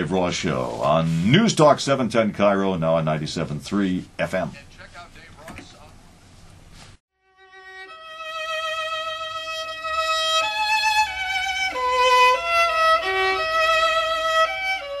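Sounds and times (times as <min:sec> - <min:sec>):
violin melody with vibrato: 0:07.2 - 0:15.0.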